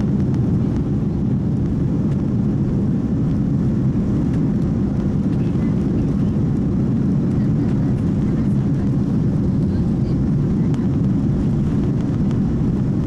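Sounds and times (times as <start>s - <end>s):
aircraft cabin rumble: 0.0s - 13.0s.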